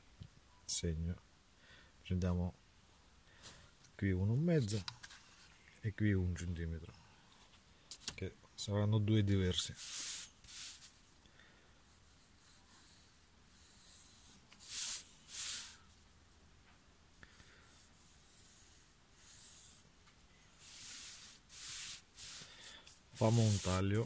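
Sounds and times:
pencil scratching on wood: 9.7 - 10.9, 12.0 - 15.8, 17.5 - 19.9, 20.5 - 24.0.

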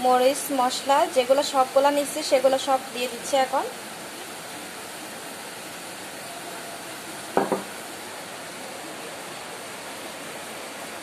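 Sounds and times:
steady background hiss: 0.0 - 11.0
glass bowl knocking on pot: 7.4 - 7.7.

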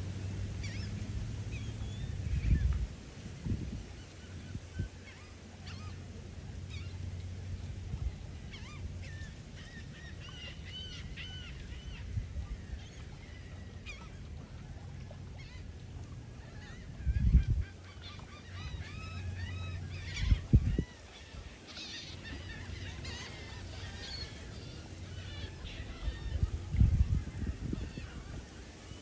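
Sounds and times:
seagulls calling: 0.2 - 2.8, 3.5 - 29.0.

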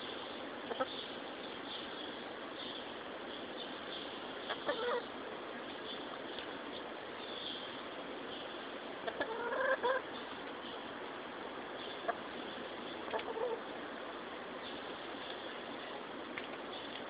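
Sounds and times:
steady background hiss: 0.0 - 17.0
chickens clucking: 0.6 - 2.9, 3.6 - 5.1, 8.4 - 10.9, 11.8 - 13.8.

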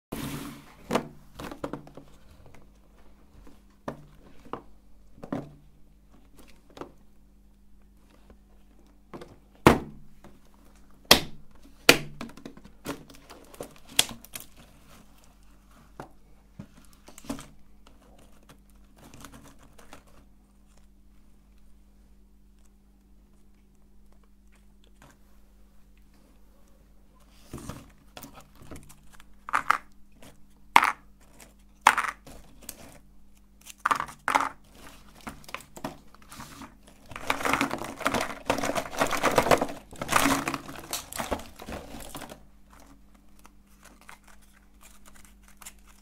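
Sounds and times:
plastic tub being handled: 33.9 - 43.1.

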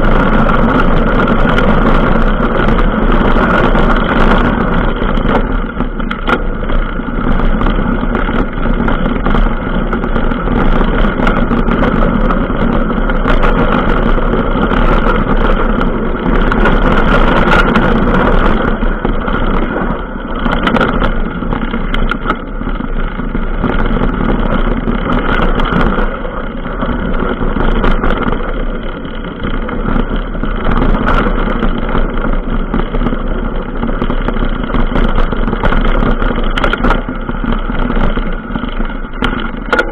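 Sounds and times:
bike riding rumble: 0.0 - 39.9
wind on microphone: 0.0 - 39.9.

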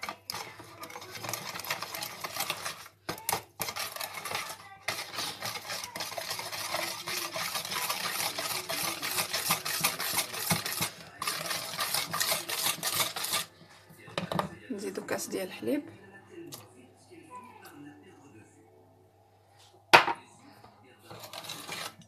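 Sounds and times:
wire whisk beating in plastic bowl: 0.0 - 14.5, 21.1 - 22.0.

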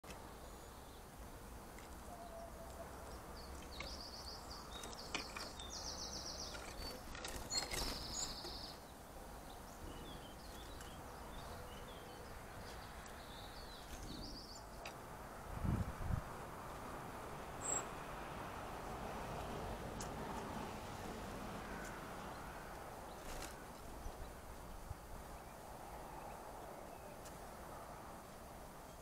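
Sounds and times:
songbirds trilling chatter: 0.2 - 15.1
bird chips: 1.8 - 8.8.

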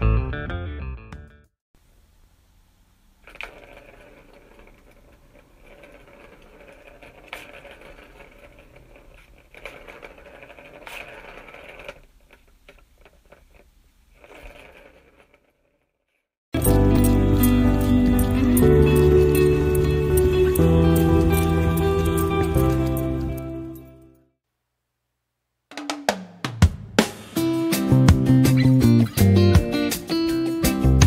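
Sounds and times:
skateboard wheels rolling on pavement: 1.8 - 24.1
skateboard clacks: 3.2 - 13.6.

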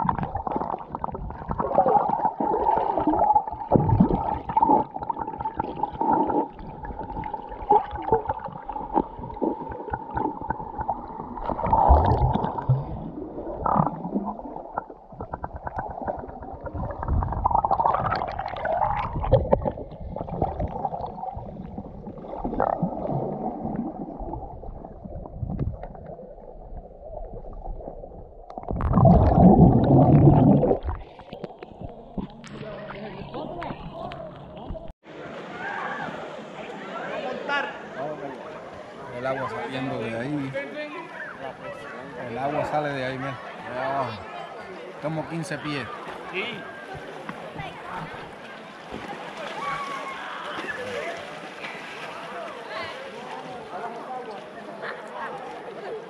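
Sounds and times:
water gurgling underwater: 0.0 - 35.0
water sloshing: 0.0 - 35.0.

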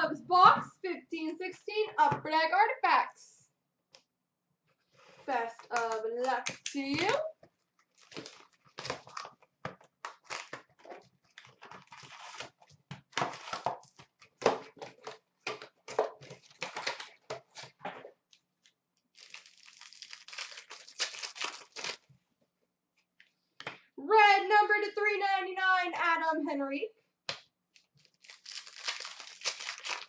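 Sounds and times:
foil packs tearing and crinkling: 7.9 - 9.4, 10.1 - 13.6, 19.1 - 22.0, 28.0 - 30.0.

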